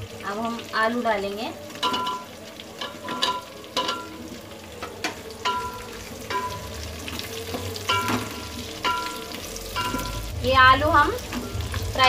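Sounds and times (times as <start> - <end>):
oil sizzling: 0.0 - 12.0
wooden spoon knocking metal pot: 7.8 - 10.2.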